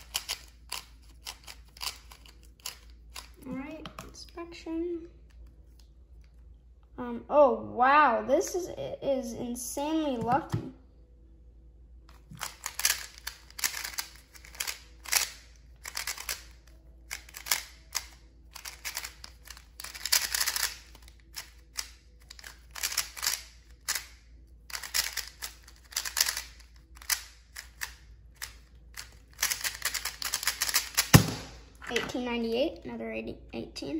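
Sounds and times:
puzzle cube clacking: 0.0s - 3.4s, 12.1s - 32.1s.

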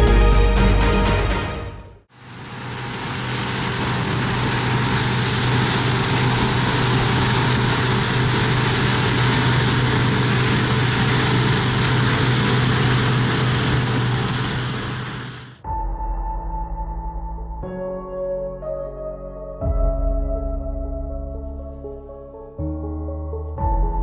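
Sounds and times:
combine harvester droning: 2.2s - 15.6s.

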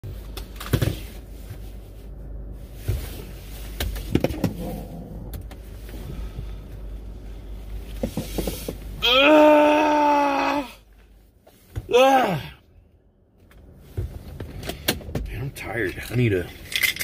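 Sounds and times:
car low rumble: 0.0s - 17.0s
knocks of shifting in seat: 13.4s - 15.4s.

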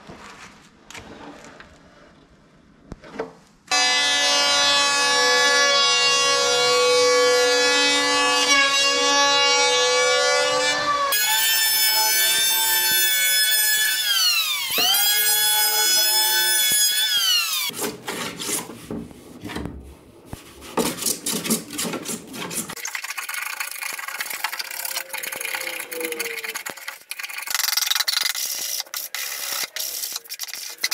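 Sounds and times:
electric planer motor whine: 3.7s - 13.0s.

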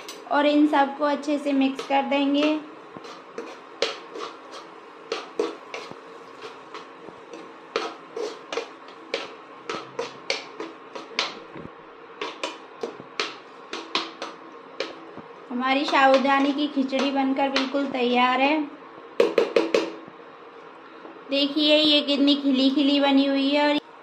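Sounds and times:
utensil stirring in frying pan: 1.2s - 18.0s.

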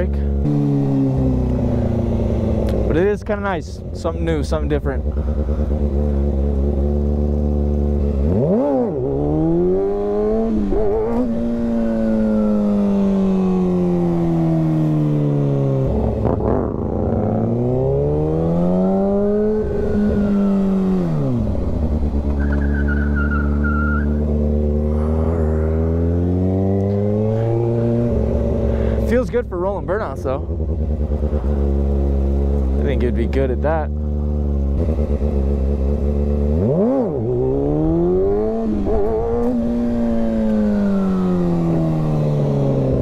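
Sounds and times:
motorcycle engine revving: 0.0s - 43.0s
faint high squeal: 22.4s - 24.2s.

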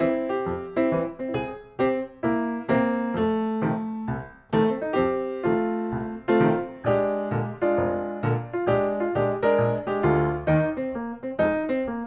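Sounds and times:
piano-like keyboard melody: 0.0s - 12.0s.

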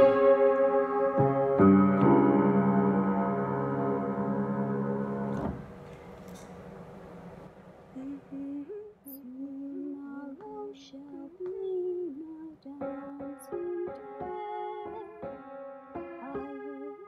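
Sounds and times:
piano chords: 0.0s - 7.5s, 9.8s - 17.0s
woman humming a slow melody: 8.0s - 15.4s, 16.0s - 17.0s.

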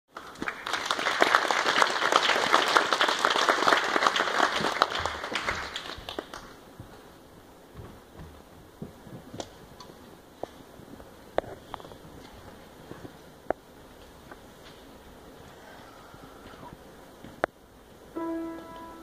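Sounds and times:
audience applauding: 0.1s - 6.6s
individual claps close by: 0.1s - 6.6s.

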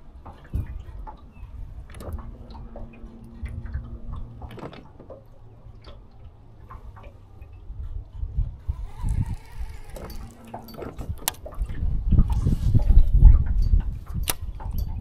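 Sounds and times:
fishing reel clicking: 8.6s - 11.5s.

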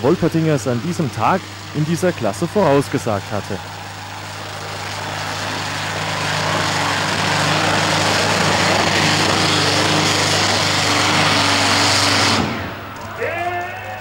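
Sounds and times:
tractor engine under load: 0.0s - 14.0s.

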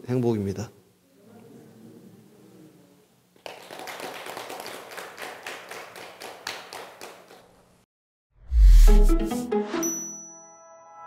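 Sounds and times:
audience clapping: 3.4s - 7.6s.

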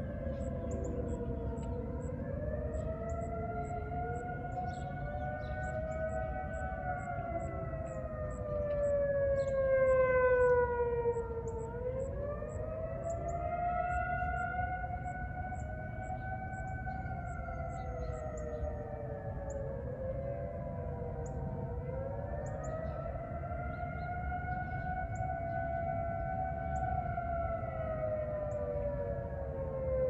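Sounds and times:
distant warning sirens: 0.0s - 30.0s.

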